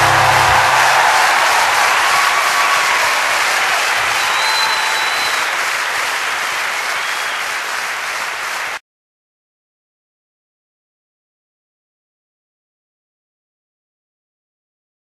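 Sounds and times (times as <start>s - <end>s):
audience applause: 0.0s - 8.8s.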